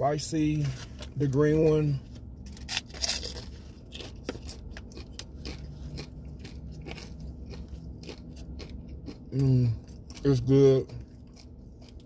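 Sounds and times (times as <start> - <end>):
crunchy bite into taco: 2.6 - 12.0
crunchy chewing: 2.6 - 12.0.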